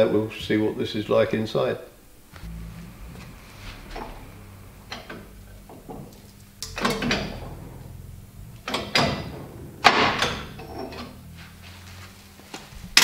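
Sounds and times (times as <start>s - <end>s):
loud metallic clunks with scraping: 1.9s - 13.0s.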